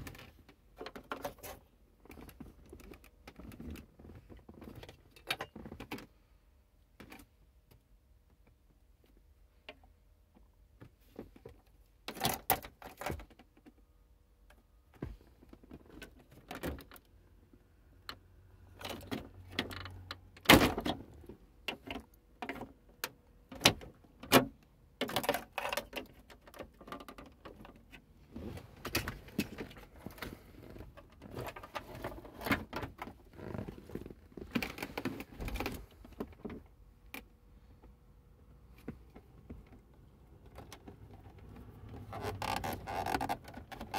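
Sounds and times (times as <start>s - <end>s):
plastic clicks and rattles: 18.0s - 28.0s.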